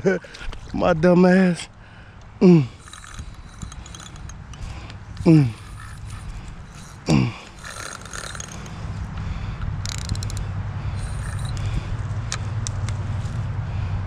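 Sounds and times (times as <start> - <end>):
fishing reel mechanical drone: 2.7 - 9.2, 9.8 - 12.4
sharp reel clicks: 2.8 - 8.8, 9.8 - 13.0.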